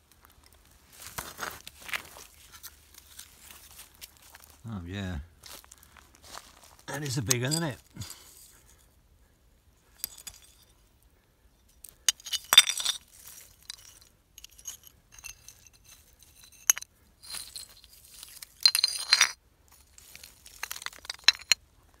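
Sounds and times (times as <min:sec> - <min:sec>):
pottery shards clinking: 0:06.9 - 0:08.4, 0:12.0 - 0:19.4, 0:20.4 - 0:21.6.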